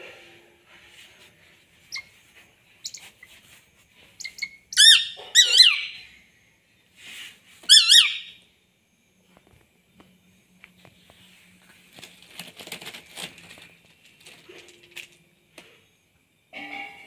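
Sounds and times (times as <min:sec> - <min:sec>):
hawk squealing calls: 0:04.2 - 0:06.0, 0:07.7 - 0:08.4.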